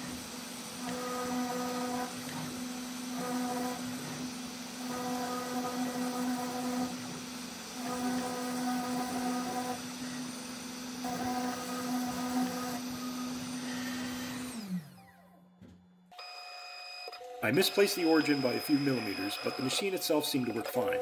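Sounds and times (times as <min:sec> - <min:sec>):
router spindle whine: 0:00.0 - 0:15.4, 0:16.2 - 0:21.0
higher-pitched machine hum: 0:16.2 - 0:21.0.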